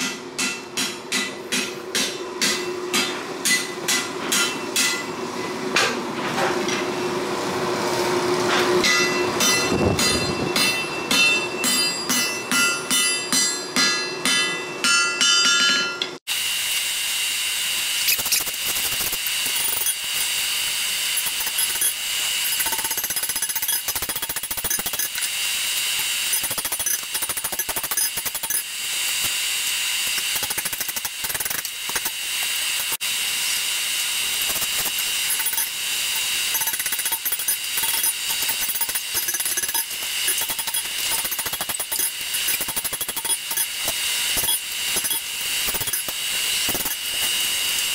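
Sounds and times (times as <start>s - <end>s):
anvil ringing: 0.0s - 5.2s, 8.8s - 16.2s
hammer blows on anvil: 0.0s - 6.0s, 8.5s - 16.2s.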